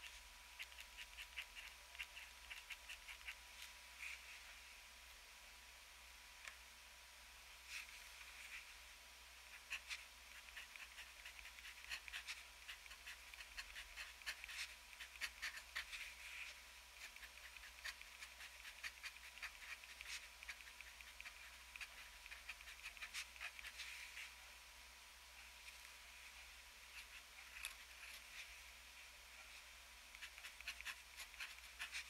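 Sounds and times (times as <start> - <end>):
fountain pen scratching on paper: 0.6 - 3.4, 9.6 - 23.9, 30.1 - 32.0.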